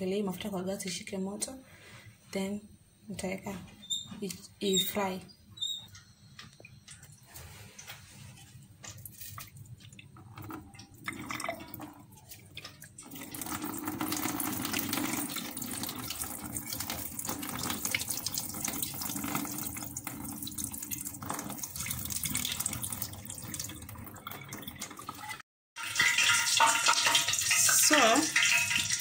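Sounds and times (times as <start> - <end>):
tap water rushing into sink: 8.8 - 29.0.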